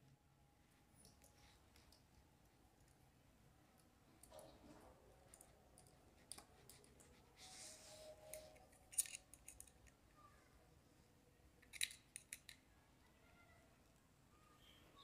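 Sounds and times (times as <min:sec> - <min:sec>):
screwdriver clicking and scraping: 0:08.3 - 0:09.7.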